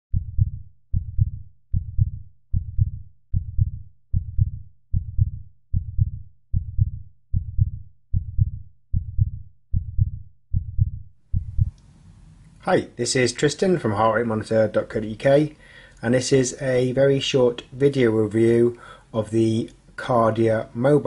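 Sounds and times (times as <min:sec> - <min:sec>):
heartbeat double thump: 0:00.1 - 0:11.8.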